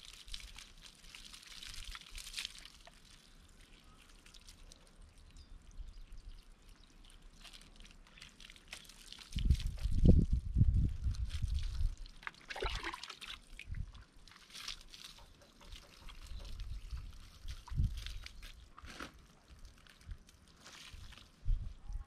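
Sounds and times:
water splashing over wet dog: 11.3 - 13.6.

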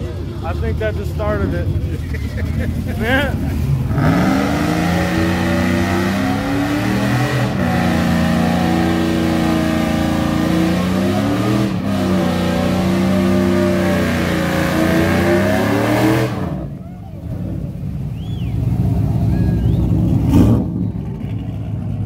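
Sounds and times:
car engine revving hard: 2.9 - 16.7, 19.7 - 20.8.

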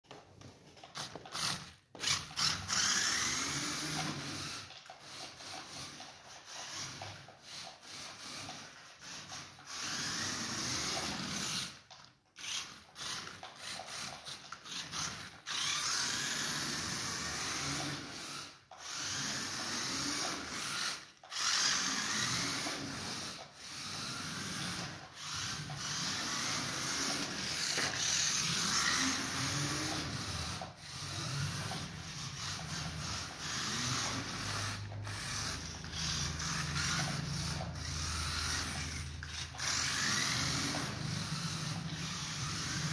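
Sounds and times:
toy car electric motor whining: 0.7 - 42.9
tyres scrubbing on tile floor: 12.4 - 42.9.

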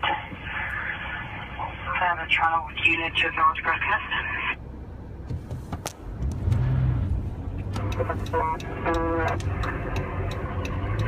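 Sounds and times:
car engine and road noise: 0.0 - 11.0
scattered clicks: 7.6 - 11.0.

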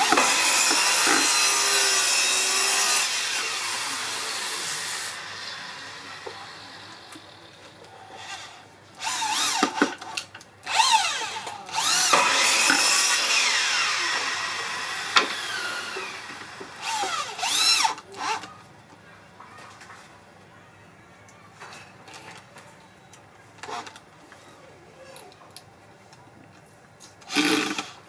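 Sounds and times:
cordless drill driving screws: 0.0 - 5.3, 9.0 - 10.1, 10.7 - 18.5, 27.2 - 28.0.

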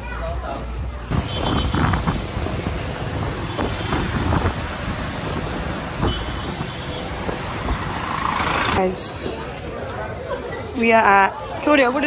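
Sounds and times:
street traffic: 0.0 - 12.0
wind buffeting microphone: 1.1 - 8.8
motorbike engine: 1.1 - 9.2.

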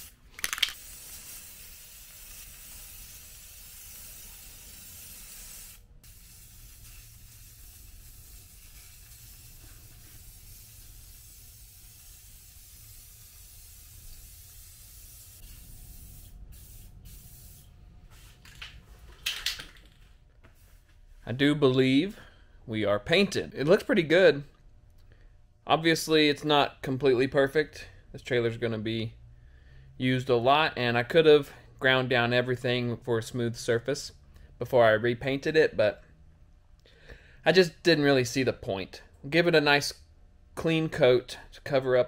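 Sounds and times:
aerosol spray can hissing: 0.0 - 18.4.

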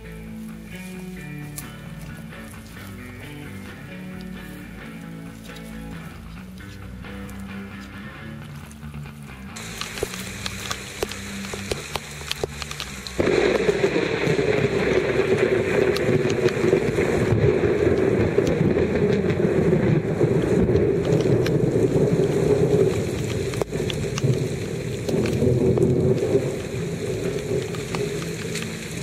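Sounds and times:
heavy rain on water: 9.6 - 29.0
raindrop taps: 9.6 - 29.0.

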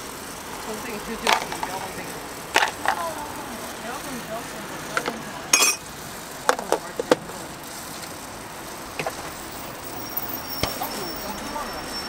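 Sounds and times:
street background hum: 0.0 - 12.0
metal spoon and utensils clinking: 5.0 - 5.9.

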